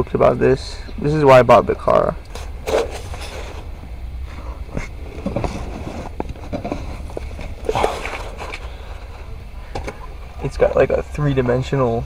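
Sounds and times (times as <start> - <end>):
steady low rumble: 0.0 - 12.0
rustling: 2.3 - 3.7, 4.8 - 10.0.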